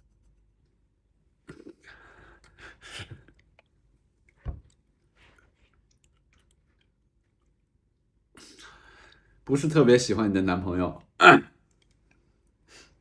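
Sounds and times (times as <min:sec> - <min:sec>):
person chewing crunchy food: 0:05.4 - 0:07.7.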